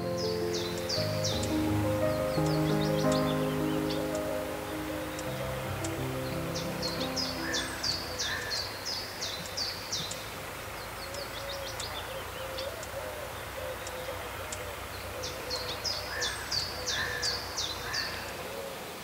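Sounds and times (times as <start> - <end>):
birds singing high notes: 0.0 - 9.2.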